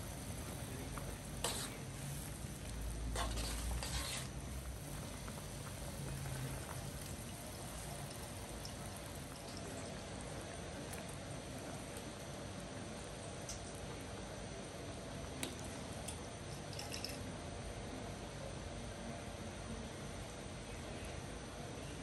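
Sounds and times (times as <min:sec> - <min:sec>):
ladle stirring liquid: 0:00.0 - 0:13.8
broth simmering in a wok: 0:00.0 - 0:22.0.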